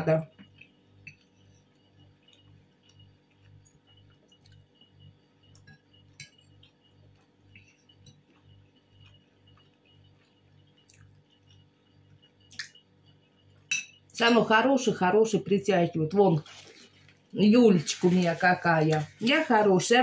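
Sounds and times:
faint chewing: 0:00.5 - 0:04.9, 0:06.3 - 0:11.7.

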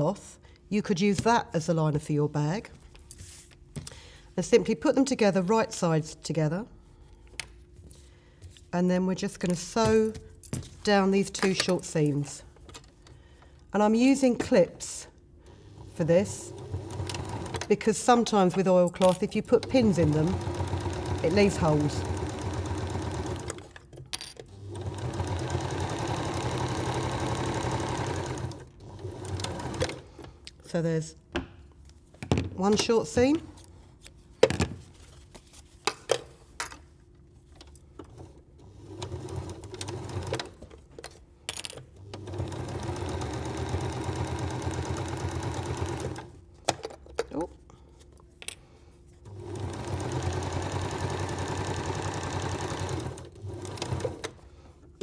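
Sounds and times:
electric sewing machine stitching: 0:15.8 - 0:17.7, 0:19.6 - 0:23.8, 0:24.5 - 0:30.0, 0:38.6 - 0:40.6, 0:42.0 - 0:46.3, 0:49.3 - 0:54.4.

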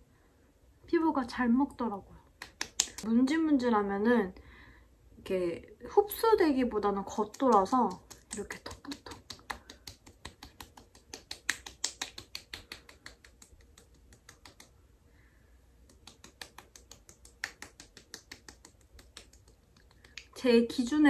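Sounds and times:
fingertips patting skin: 0:02.3 - 0:03.1, 0:07.0 - 0:14.8, 0:15.8 - 0:20.4.

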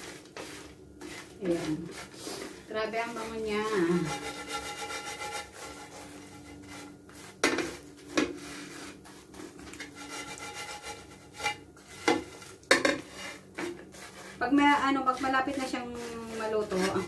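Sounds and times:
dry fish rustling in pan: 0:00.0 - 0:17.0
spatula scraping frying pan: 0:00.0 - 0:17.0
spatula knocking on pan: 0:07.4 - 0:08.4, 0:09.8 - 0:13.9.

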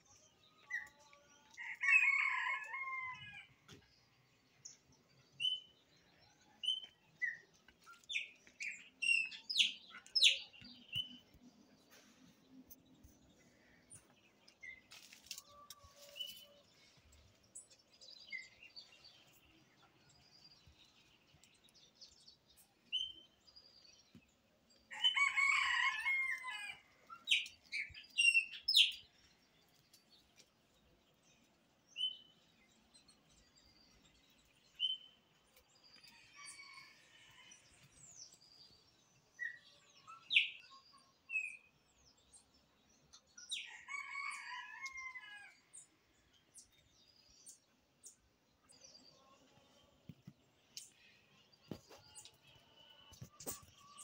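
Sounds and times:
small birds chirping: 0:00.0 - 0:11.8, 0:12.6 - 0:54.0
rooster crowing: 0:01.7 - 0:03.5, 0:24.9 - 0:26.9.

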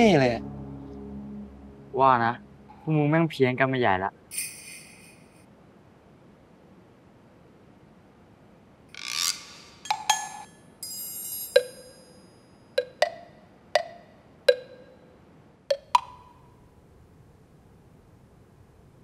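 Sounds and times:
glassy chime shimmer: 0:04.3 - 0:05.4, 0:09.8 - 0:12.5
hollow wood-block knocks: 0:12.8 - 0:14.9, 0:15.7 - 0:16.2.

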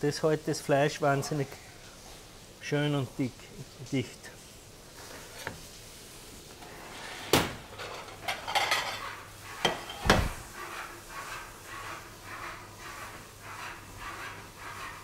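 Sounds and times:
cutlery rattling: 0:07.7 - 0:09.1.

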